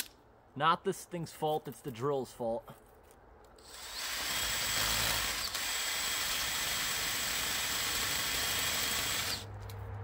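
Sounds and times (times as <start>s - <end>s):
cordless drill chainsaw running: 3.6s - 9.5s.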